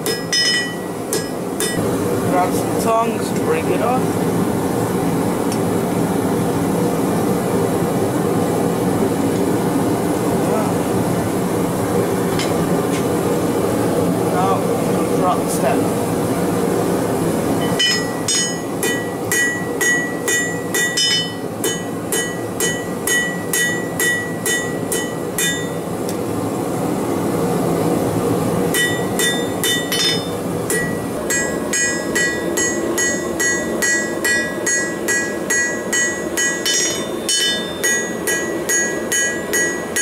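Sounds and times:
hammer striking steel on anvil: 0.0 - 1.8, 17.6 - 25.8, 28.7 - 40.0.

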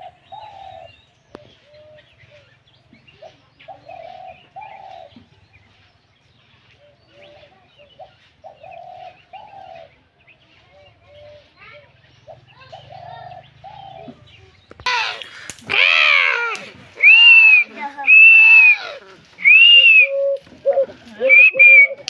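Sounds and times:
dove cooing: 0.0 - 2.1, 3.2 - 5.2, 7.1 - 9.9, 12.3 - 14.2, 14.9 - 22.0
small birds chirping: 0.0 - 22.0.

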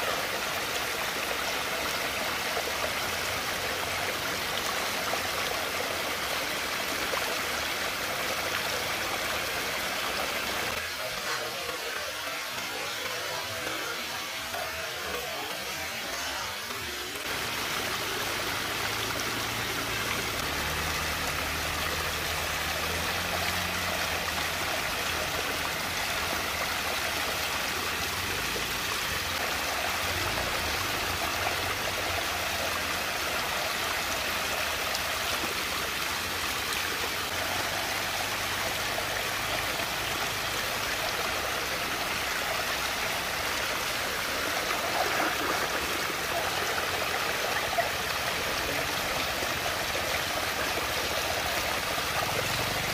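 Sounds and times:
water swirling down a drain: 39.9 - 52.9.

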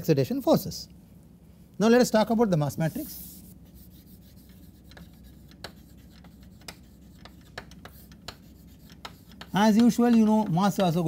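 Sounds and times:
low room hum: 0.0 - 11.0
chalk scratching on blackboard: 2.9 - 11.0
chalk tapping on board: 3.6 - 11.0.

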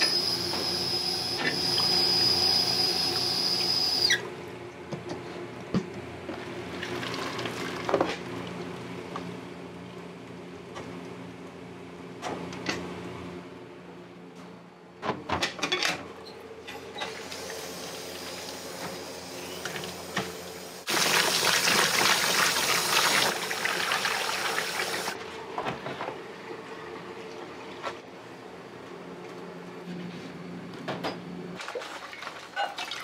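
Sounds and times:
tap water running hard: 0.0 - 4.2, 17.2 - 25.2
kitchen machinery hum: 0.0 - 31.6.

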